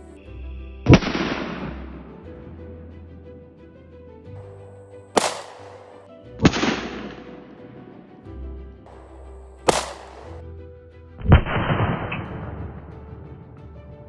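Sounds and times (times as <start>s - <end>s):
background music: 0.0s - 14.0s
pistol shots: 0.9s - 2.2s, 5.1s - 7.4s, 8.9s - 10.4s.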